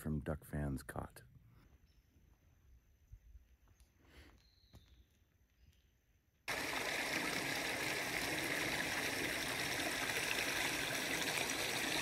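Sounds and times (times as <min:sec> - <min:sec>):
water flowing in creek: 0:06.5 - 0:12.0.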